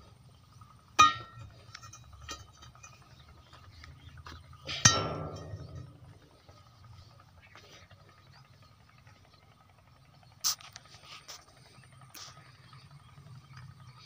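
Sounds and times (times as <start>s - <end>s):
hand tamper striking gravel: 1.0s - 2.5s.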